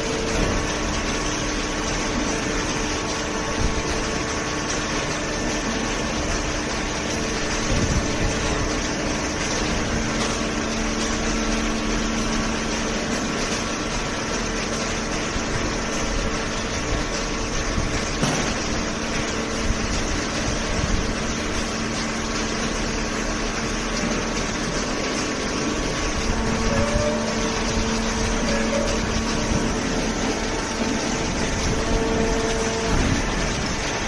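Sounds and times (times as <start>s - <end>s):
machine hum: 0.0s - 34.0s
held machine tones: 26.4s - 29.5s.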